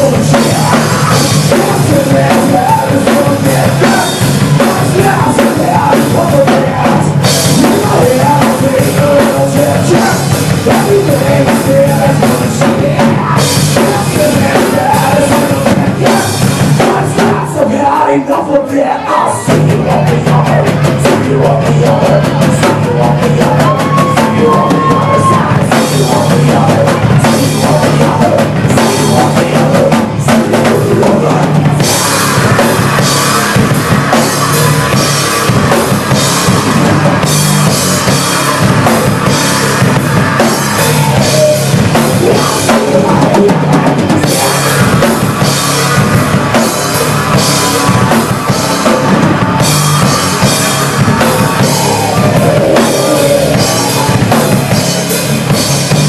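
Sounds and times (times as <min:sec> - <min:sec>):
drum kit with cymbal hits: 0:00.0 - 0:18.1, 0:19.3 - 0:56.0
electric guitars: 0:19.0 - 0:56.0.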